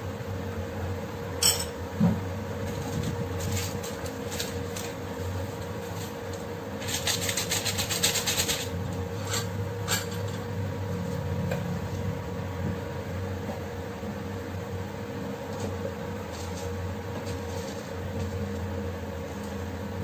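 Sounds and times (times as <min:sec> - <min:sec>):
steady low hum: 0:00.0 - 0:07.2, 0:07.8 - 0:20.0
foil sachet crinkling: 0:06.8 - 0:08.7.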